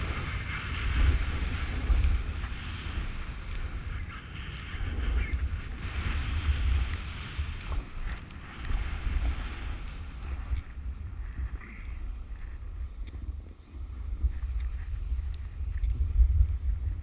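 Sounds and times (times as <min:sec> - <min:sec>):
snow sliding hiss: 0:00.0 - 0:17.0
wind rumbling on microphone: 0:00.0 - 0:17.0
faint clicks: 0:03.4 - 0:03.7, 0:06.6 - 0:08.8, 0:10.4 - 0:13.3, 0:14.2 - 0:16.6.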